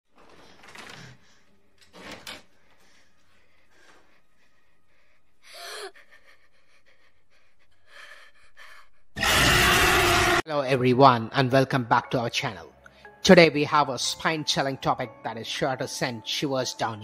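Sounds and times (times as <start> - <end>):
faint breathing: 2.5 - 9.2
girl gasping: 5.4 - 9.1.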